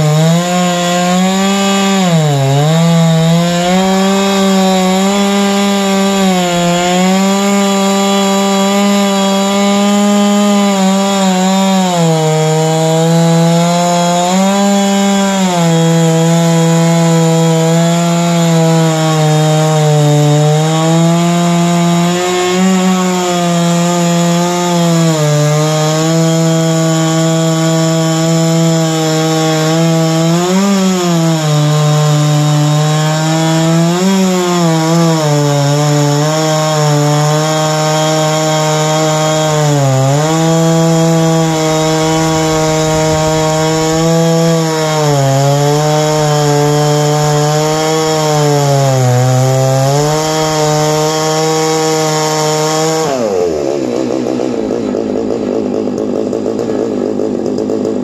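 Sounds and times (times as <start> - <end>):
chainsaw cutting through log: 0.0 - 58.0.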